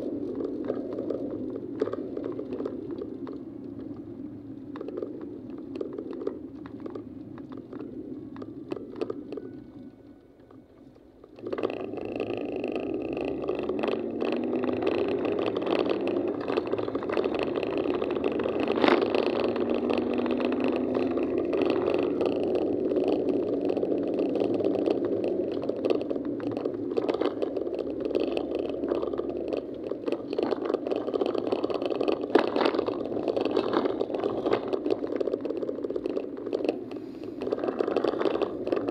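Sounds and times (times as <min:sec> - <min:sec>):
road noise: 0:00.0 - 0:38.9
car engine: 0:11.4 - 0:38.9.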